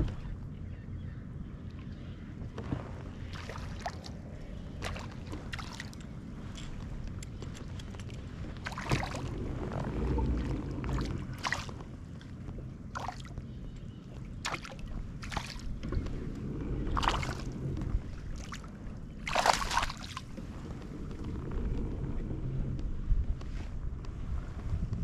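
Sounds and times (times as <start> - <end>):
wind rumble on microphone: 0.0 - 25.0
waves slapping kayak hull: 2.3 - 25.0.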